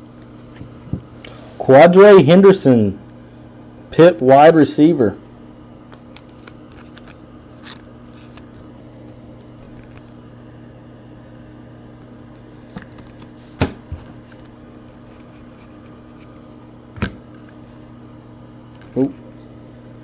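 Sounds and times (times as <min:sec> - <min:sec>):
steady low hum: 0:00.0 - 0:20.0
cards and foil packs rustling: 0:06.0 - 0:08.7.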